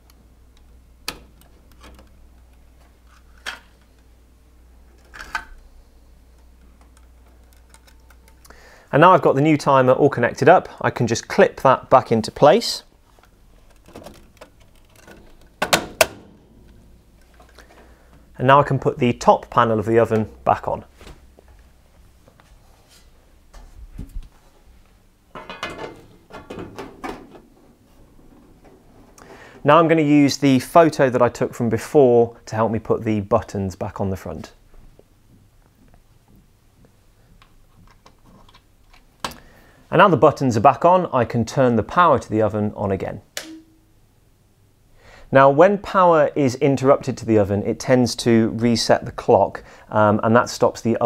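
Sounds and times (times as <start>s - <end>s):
connectors clicking onto terminals: 6.4s - 8.6s
metal panel knocked into place: 15.6s - 16.7s.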